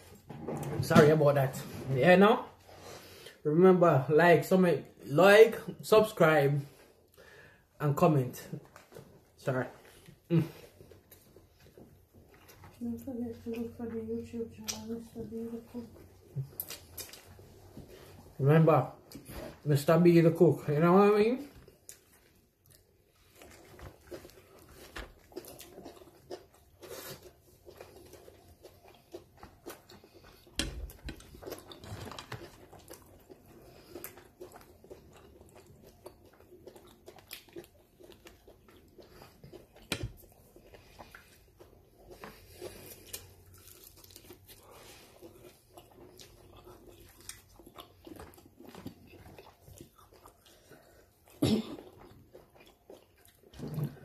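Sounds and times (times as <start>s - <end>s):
person chewing and crunching food: 0.0s - 54.0s.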